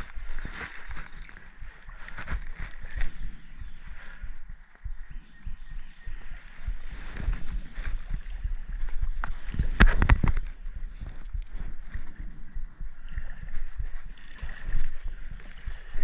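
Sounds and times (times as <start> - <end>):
creek water splashing: 0.0 - 4.4, 13.2 - 16.0.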